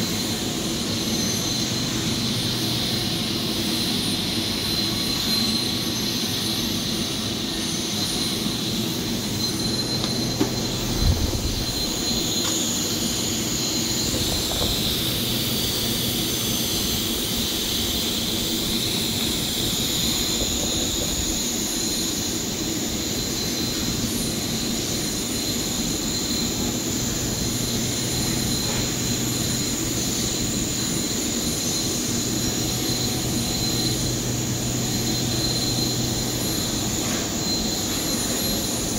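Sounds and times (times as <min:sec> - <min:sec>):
workshop hum with high whine: 0:00.0 - 0:38.9.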